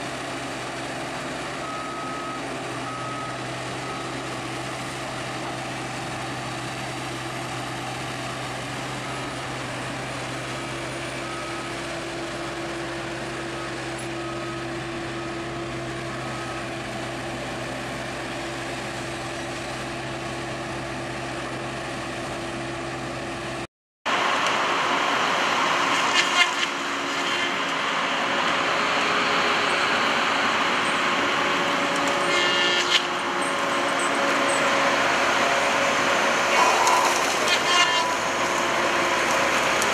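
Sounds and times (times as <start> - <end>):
diesel engine under load: 0.0 - 39.9
faint short beeps: 36.6 - 37.2.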